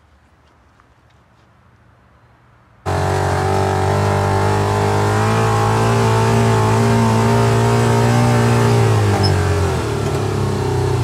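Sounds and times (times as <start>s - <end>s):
motorcycle engine running: 2.9s - 11.0s.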